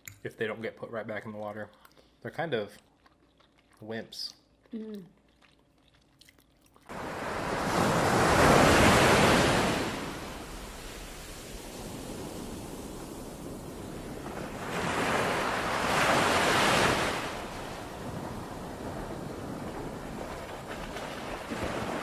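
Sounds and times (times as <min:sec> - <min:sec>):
ocean waves breaking: 0:06.9 - 0:22.0.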